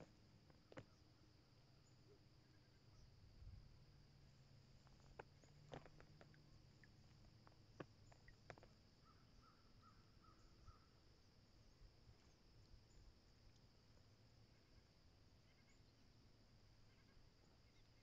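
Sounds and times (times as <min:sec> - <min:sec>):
faint calls: 0:05.0 - 0:11.0, 0:14.5 - 0:16.1, 0:16.7 - 0:18.0.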